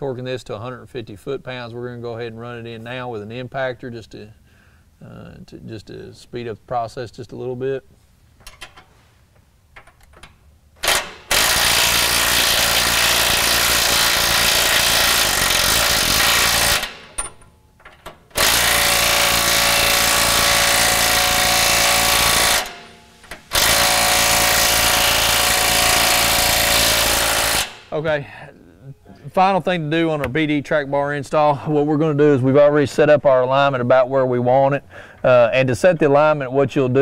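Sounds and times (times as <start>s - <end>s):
impact wrench hammering: 9.8s - 28.2s.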